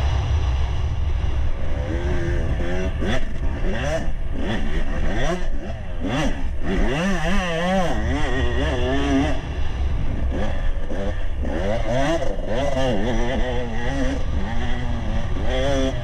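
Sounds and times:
wind rumble on microphone: 0.0 - 6.0, 8.0 - 12.2
dirt bike engine revving: 1.5 - 16.0.

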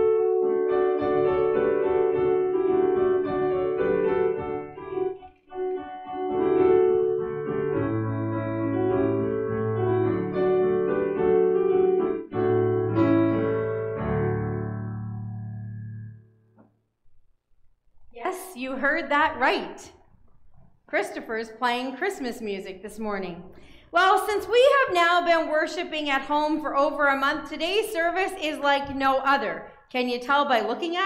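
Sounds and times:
piano playing a christmas tune: 0.0 - 16.5.

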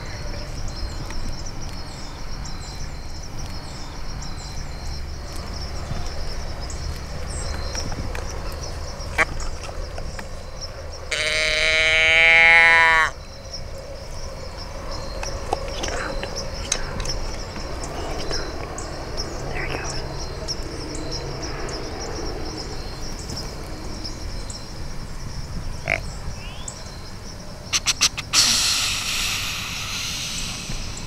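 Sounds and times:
deer call bleat: 11.1 - 13.2.

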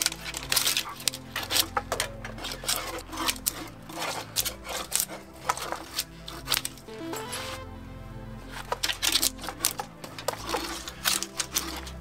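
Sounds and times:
background music low notes: 0.0 - 12.0.

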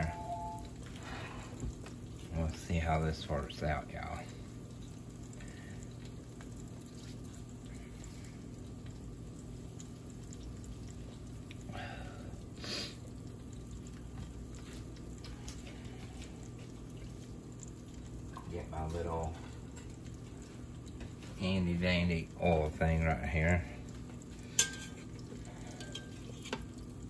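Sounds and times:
deep-frying oil bubbling and crackling: 0.0 - 27.0.

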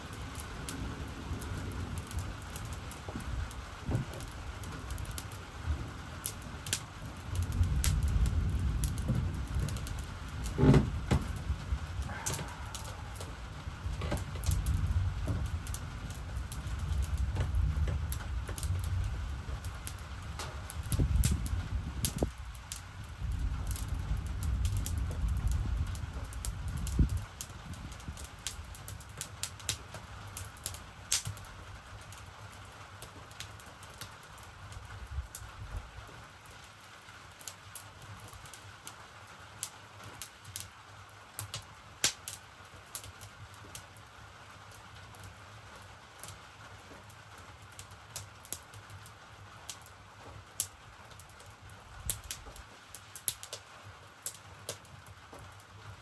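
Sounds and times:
wood fire crackling and popping: 0.0 - 56.0
low rumble: 7.2 - 22.4.

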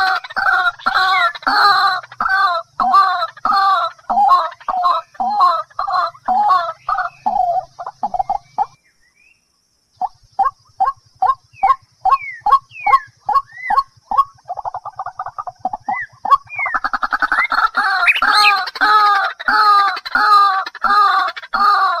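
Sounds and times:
waterhen calling: 12.1 - 21.8.

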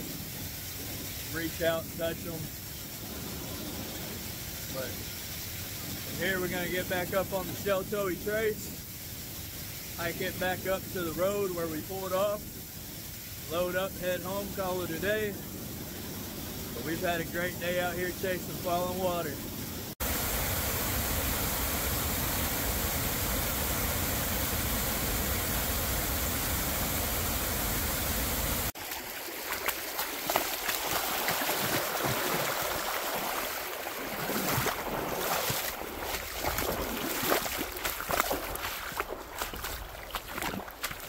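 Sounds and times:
water splashing and gurgling: 15.9 - 41.0
waterfall rushing: 19.9 - 28.8.

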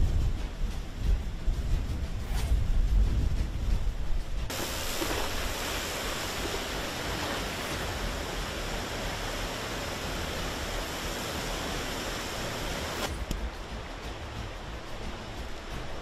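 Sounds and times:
river rushing in flood: 4.5 - 16.0.

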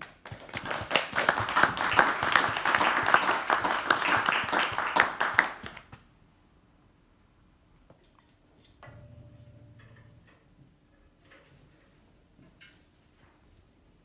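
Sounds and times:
audience applause: 0.1 - 5.9.

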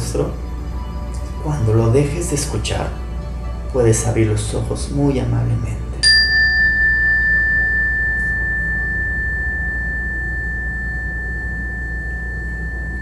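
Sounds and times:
low steady hum: 0.0 - 13.0
meditation bell ringing: 6.0 - 13.0.

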